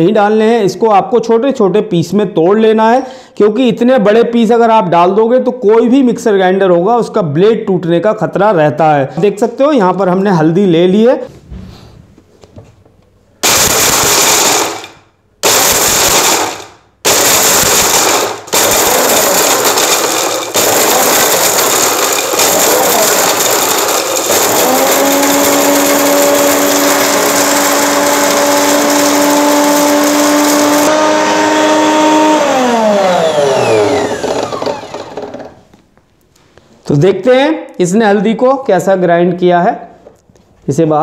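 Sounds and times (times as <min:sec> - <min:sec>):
mixer grinder grinding: 0:13.4 - 0:35.8.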